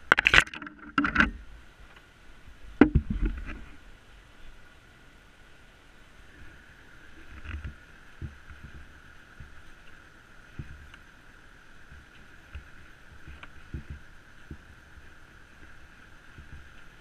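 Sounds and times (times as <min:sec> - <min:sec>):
dull thumps: 0:02.8 - 0:03.6, 0:11.9 - 0:14.8.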